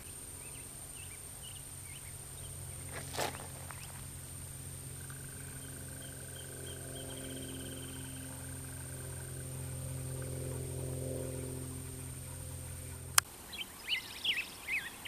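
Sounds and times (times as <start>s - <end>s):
low steady hum: 0.0s - 15.0s
steady high tone: 5.4s - 13.2s.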